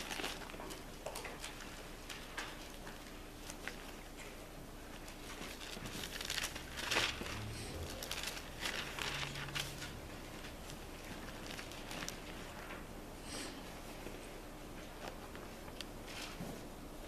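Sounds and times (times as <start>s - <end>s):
thin pages rustling and turning: 0.0s - 12.8s, 14.8s - 16.7s.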